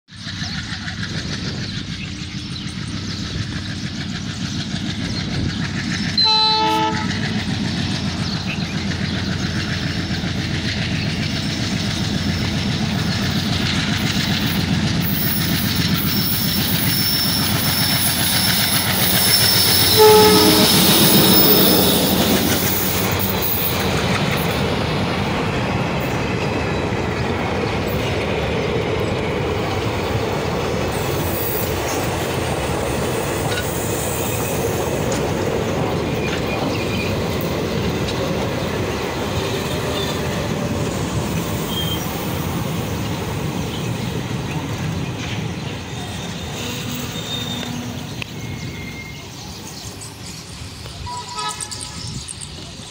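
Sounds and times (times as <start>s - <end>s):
diesel locomotive engine rumbling: 0.1s - 52.9s
train wheels clicking over rail joints: 0.1s - 52.9s
train horn blast: 6.2s - 7.2s, 19.4s - 21.4s, 46.4s - 49.1s, 51.0s - 52.2s.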